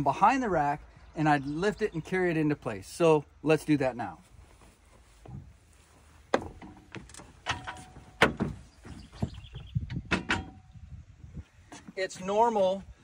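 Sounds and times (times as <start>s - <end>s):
footsteps in truck bed: 4.2s - 10.6s, 11.4s - 13.0s
irregular thuds: 4.6s - 10.7s.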